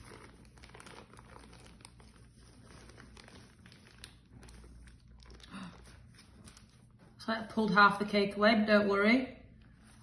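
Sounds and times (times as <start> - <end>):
baking paper crinkling and tearing: 0.0 - 7.0.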